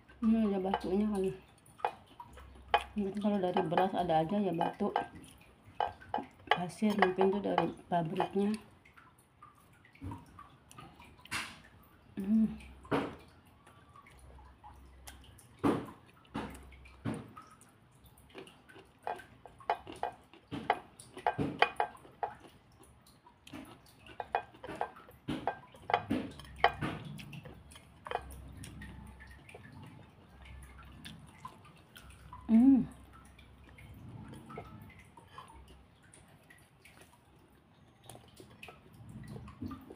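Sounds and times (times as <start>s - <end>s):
dishes clinking: 5.8s - 8.4s, 19.0s - 22.4s, 24.1s - 29.6s
wet chewing and mouth smacks: 12.7s - 39.9s.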